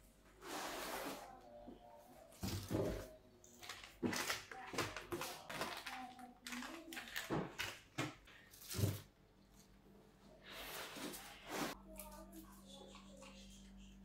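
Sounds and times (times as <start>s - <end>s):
plastic packets crinkling: 3.6s - 8.8s
wicker basket scraping and creaking: 10.4s - 11.8s.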